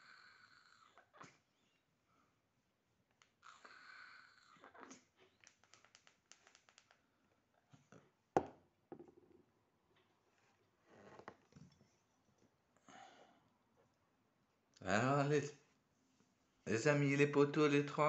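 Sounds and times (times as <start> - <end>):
faint clicks: 4.8 - 7.0
pen knocking on tabletop: 8.4 - 9.3.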